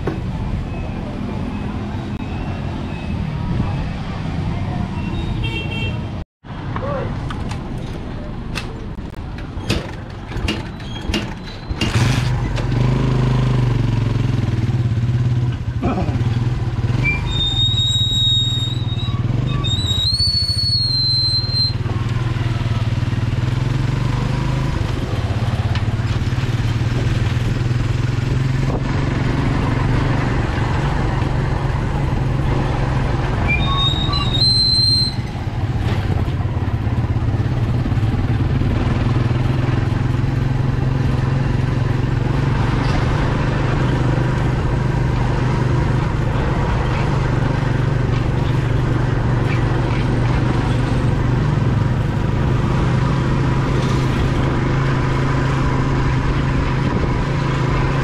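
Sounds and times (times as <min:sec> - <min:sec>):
road noise: 0:00.0 - 0:58.0
high whistling tone: 0:33.5 - 0:35.3
motorcycle engine running: 0:35.5 - 0:53.7.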